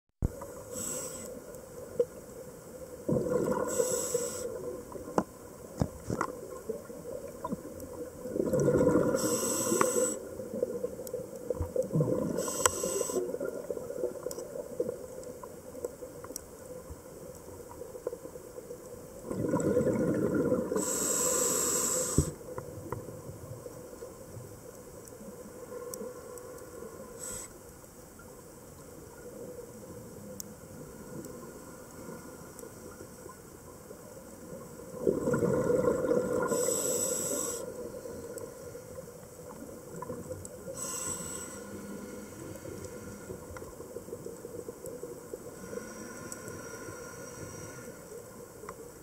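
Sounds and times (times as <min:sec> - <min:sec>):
regulator breathing hiss: 0:00.6 - 0:01.5, 0:03.6 - 0:04.6, 0:09.1 - 0:10.3, 0:12.4 - 0:13.4, 0:20.8 - 0:22.4, 0:27.0 - 0:27.7, 0:36.4 - 0:38.1, 0:40.7 - 0:43.5, 0:45.5 - 0:48.2
exhaled bubbles rushing: 0:03.0 - 0:03.8, 0:08.2 - 0:09.3, 0:11.8 - 0:12.4, 0:19.2 - 0:20.8, 0:34.9 - 0:36.6.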